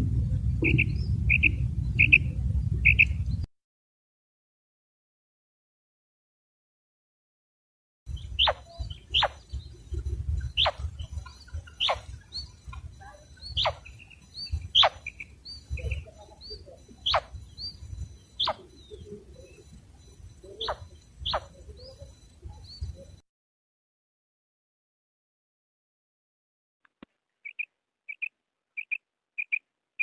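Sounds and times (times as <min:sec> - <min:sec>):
quail calling: 0:00.6 - 0:03.2, 0:08.1 - 0:19.6, 0:20.4 - 0:22.1, 0:27.4 - 0:29.6
soft short peeps: 0:08.1 - 0:23.2.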